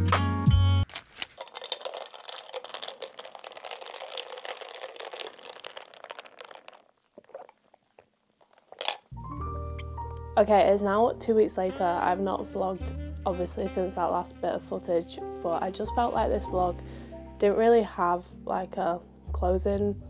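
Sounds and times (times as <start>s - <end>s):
dense crackling and crinkling: 0.8s - 9.1s.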